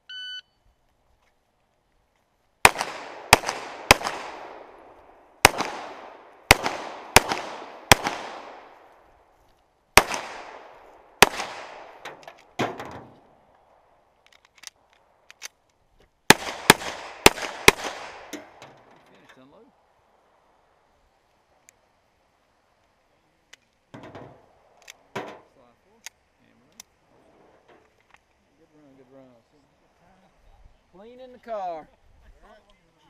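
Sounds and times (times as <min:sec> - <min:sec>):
pistol shots: 0:02.6 - 0:08.9, 0:10.0 - 0:12.8, 0:16.3 - 0:18.6.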